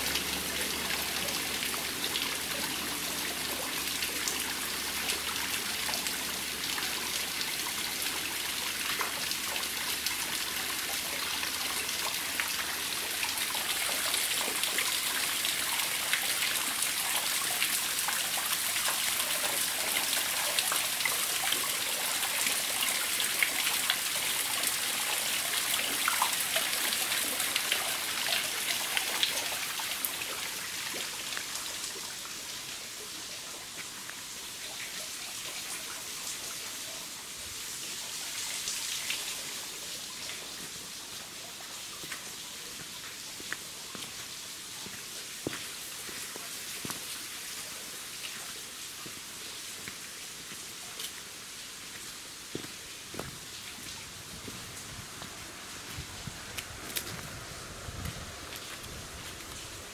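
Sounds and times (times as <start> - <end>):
waterfall splashing into pool: 0.0 - 32.2.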